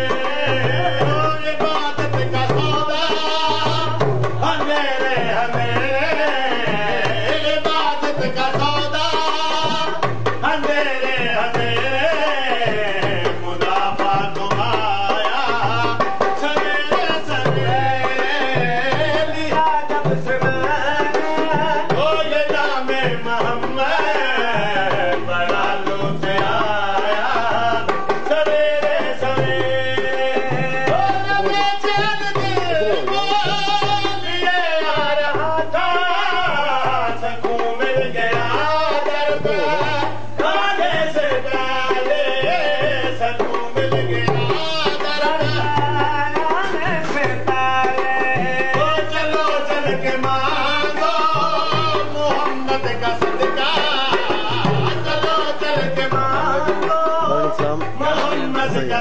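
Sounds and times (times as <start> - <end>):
hand drum beating: 0.0 - 59.0
men singing: 0.0 - 59.0.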